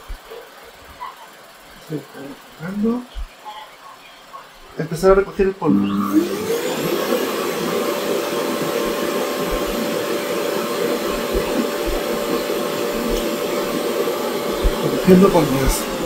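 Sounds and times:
vacuum suction motor whine: 0:05.6 - 0:16.0.

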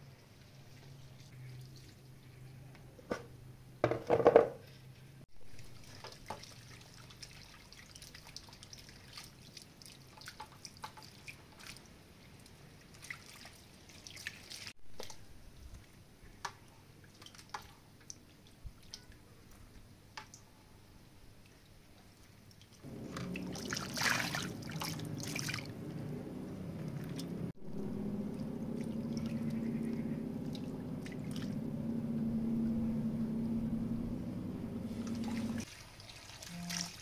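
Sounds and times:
water splashing in a bowl: 0:05.5 - 0:15.3, 0:17.0 - 0:19.2, 0:22.5 - 0:26.0, 0:28.0 - 0:31.7, 0:34.9 - 0:37.0.

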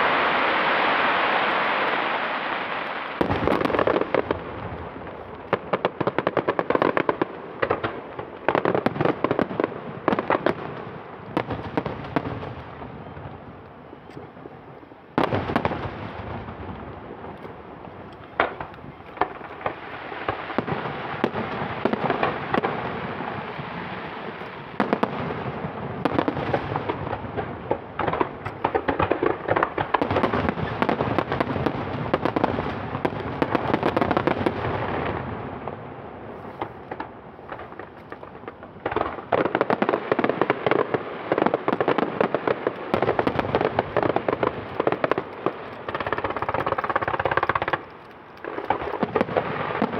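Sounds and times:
dense firework crackle: 0:00.0 - 0:49.9
firework shells bursting: 0:26.0 - 0:34.6, 0:36.4 - 0:49.9.

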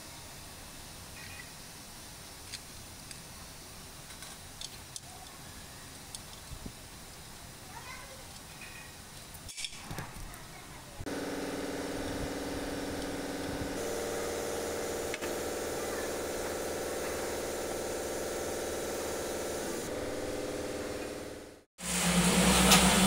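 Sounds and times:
hiss: 0:00.0 - 0:20.8
machine motor humming: 0:11.0 - 0:23.0.

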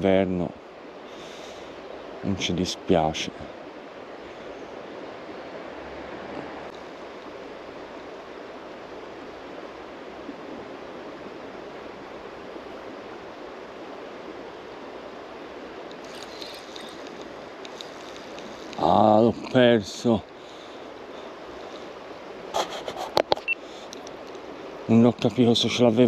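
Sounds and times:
flowing river water: 0:00.0 - 0:26.0
faint ticks: 0:15.8 - 0:19.6, 0:23.0 - 0:24.5.

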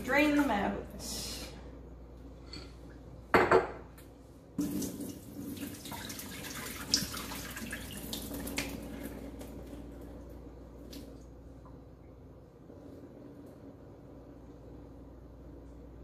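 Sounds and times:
water pouring into a sink: 0:04.6 - 0:09.8.

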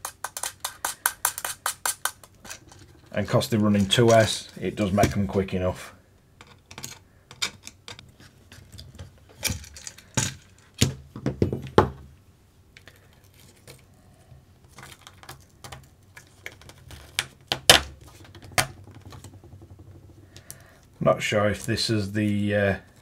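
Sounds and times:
small parts clicking and knocking: 0:00.0 - 0:05.2, 0:06.4 - 0:11.8, 0:12.8 - 0:13.9, 0:14.6 - 0:21.0.

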